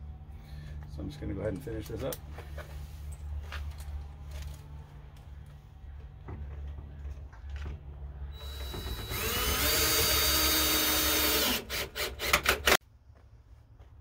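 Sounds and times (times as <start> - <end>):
power drill driving screw into wood: 8.3 - 12.8.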